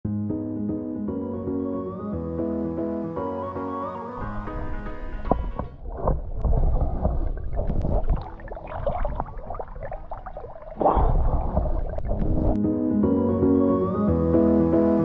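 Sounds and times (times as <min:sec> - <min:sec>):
muffled underwater sloshing: 0:04.2 - 0:12.6
bubbly crackles: 0:04.3 - 0:12.6.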